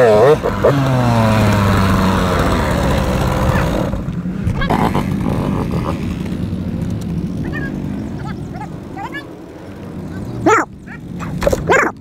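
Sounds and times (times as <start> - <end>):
motorcycle engine running: 0.0 - 12.0
high animal calls: 10.0 - 12.0.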